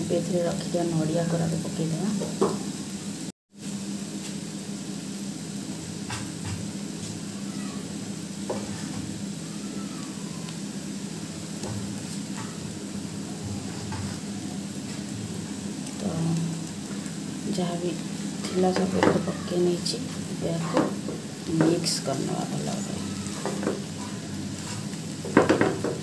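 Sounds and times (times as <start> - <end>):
food sizzling in a frying pan: 0.0 - 26.0
spatula scraping a pan: 13.6 - 14.3, 23.3 - 25.9.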